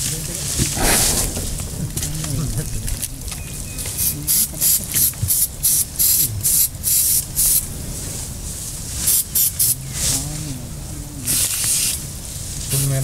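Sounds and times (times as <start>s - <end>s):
hissing spray bursts: 0.8s - 1.8s, 11.3s - 12.0s.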